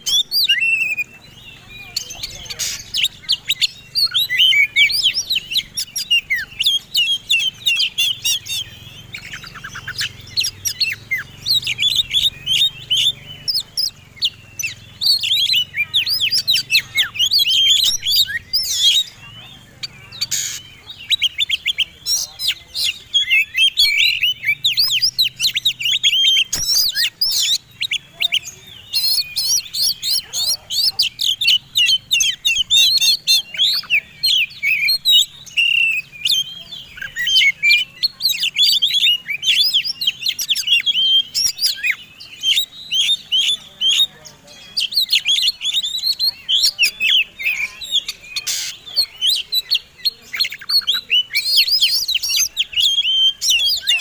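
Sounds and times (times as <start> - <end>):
songbirds singing fast chirps: 0.0 - 54.0.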